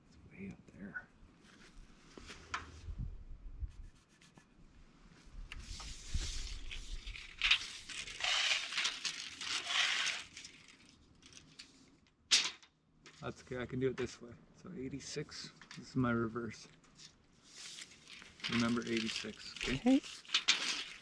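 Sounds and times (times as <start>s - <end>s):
tape measure rustling and scraping: 5.5s - 13.2s, 16.9s - 21.0s.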